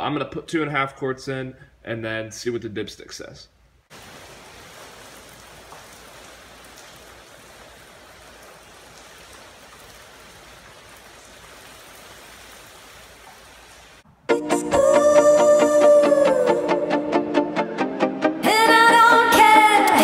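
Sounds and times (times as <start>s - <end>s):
guitar music: 14.3s - 20.0s.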